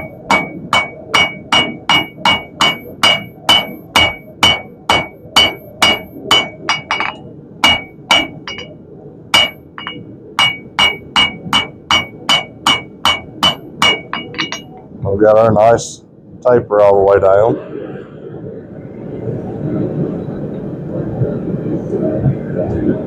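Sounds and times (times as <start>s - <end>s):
hammer striking steel on anvil: 0.0s - 8.7s, 9.4s - 14.8s.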